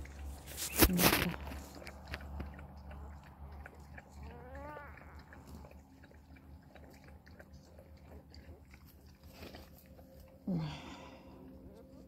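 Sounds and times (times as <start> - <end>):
puppy whimpering: 4.2 - 5.6.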